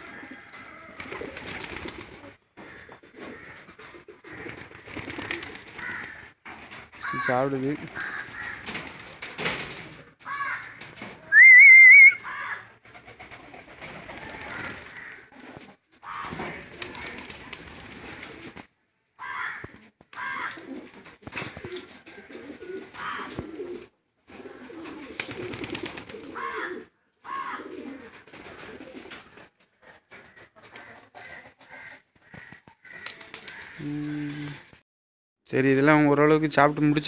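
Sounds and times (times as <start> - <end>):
pigeons cooing: 0.0 - 6.7, 7.9 - 18.6, 19.4 - 34.8
high wavering whistle-like call: 11.3 - 12.2.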